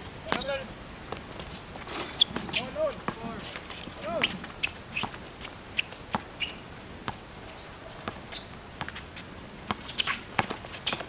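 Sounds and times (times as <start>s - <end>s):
short high squeaks: 1.9s - 2.6s
basketball bouncing on concrete: 6.1s - 6.3s, 7.0s - 7.2s, 8.0s - 8.2s, 9.6s - 11.0s.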